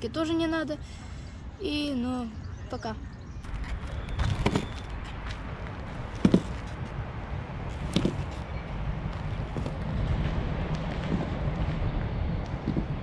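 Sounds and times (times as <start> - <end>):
skateboard rolling on concrete: 3.5 - 13.0.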